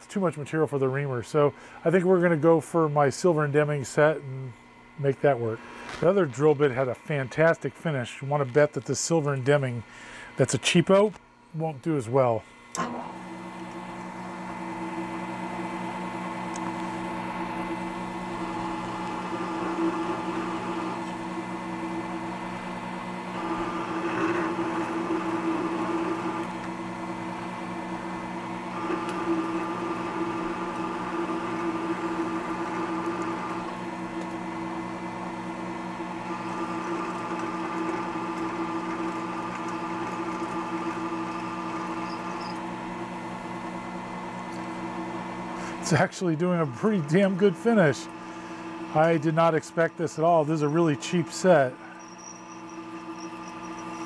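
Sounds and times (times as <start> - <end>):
drill press motor running: 12.7 - 54.0
drill bit cutting metal: 17.7 - 22.6, 23.2 - 28.1, 28.7 - 34.4, 36.1 - 42.8, 45.8 - 54.0.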